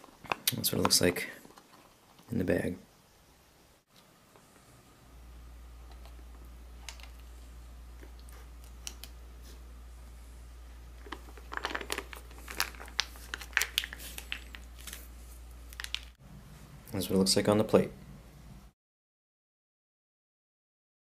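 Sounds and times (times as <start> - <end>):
steady low hum: 2.3 - 18.8
foil pouch crinkling: 11.0 - 16.2.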